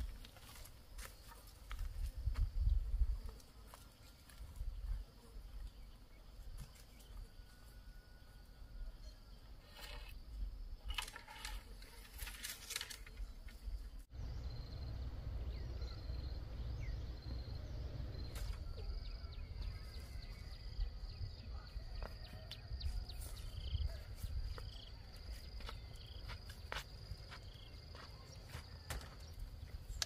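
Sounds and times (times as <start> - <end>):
insects droning: 0.0 - 30.0.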